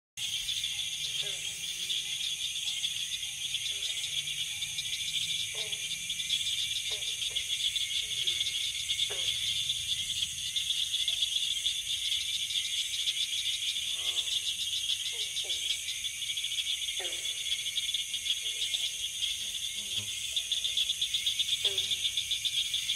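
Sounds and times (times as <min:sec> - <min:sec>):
cricket chorus: 0:00.2 - 0:22.9.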